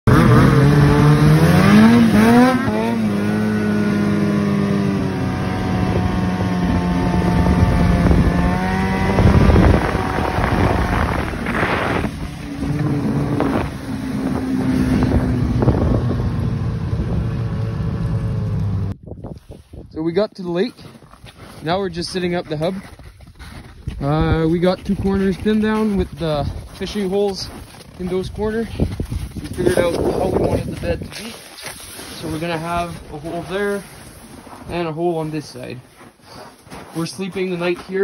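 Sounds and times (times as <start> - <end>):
snowmobile engine revving: 0.1 - 18.9, 29.4 - 35.8.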